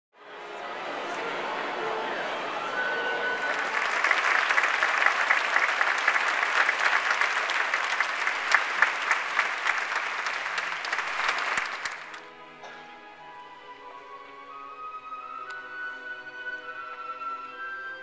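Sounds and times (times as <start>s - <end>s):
audience applauding: 0.8s - 12.3s.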